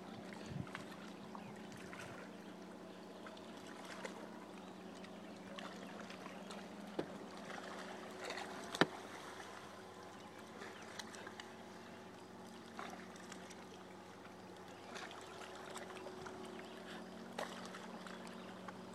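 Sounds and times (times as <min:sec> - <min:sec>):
outboard motor humming: 0:00.0 - 0:18.9
water lapping: 0:00.0 - 0:18.9.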